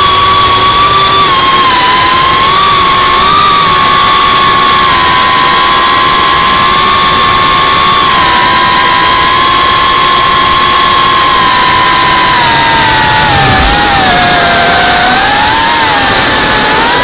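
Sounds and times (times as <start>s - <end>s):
drone motors whining: 0.0s - 17.0s
rush of air: 11.2s - 17.0s.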